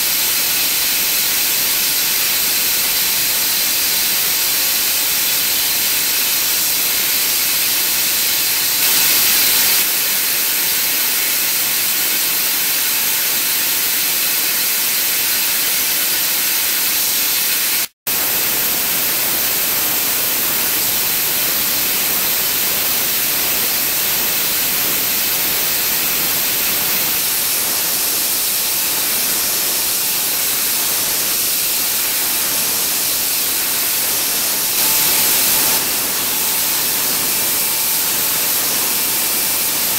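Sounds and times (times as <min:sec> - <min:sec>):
air turbine spindle hissing: 0:00.0 - 0:12.9, 0:31.4 - 0:39.9.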